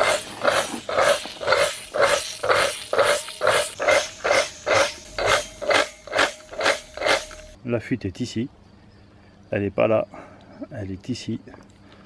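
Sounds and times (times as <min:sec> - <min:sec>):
pressure washer pulsing: 0:00.0 - 0:07.6.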